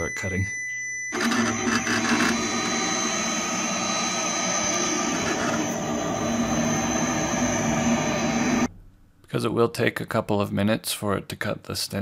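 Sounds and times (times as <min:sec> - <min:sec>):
cutting plotter motor whir: 0:01.1 - 0:08.7
thin high tone: 0:01.2 - 0:08.7.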